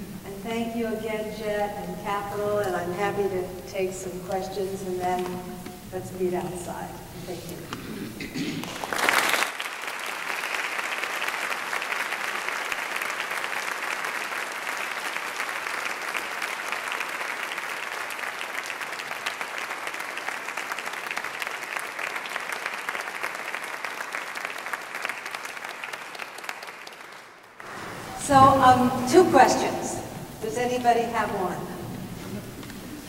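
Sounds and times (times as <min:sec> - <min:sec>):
audience applauding: 0:07.6 - 0:28.3.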